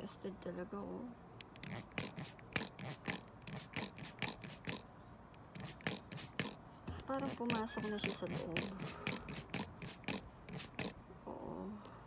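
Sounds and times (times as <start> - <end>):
spray bottle squirting: 1.4 - 4.8, 5.5 - 6.6, 7.2 - 11.0.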